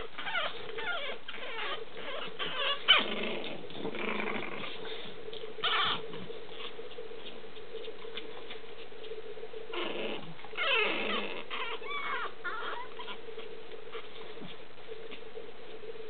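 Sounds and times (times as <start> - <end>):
puppies squeaking and whimpering: 0.0 - 5.0, 5.6 - 7.3, 9.7 - 14.6
steady hum: 0.0 - 16.0.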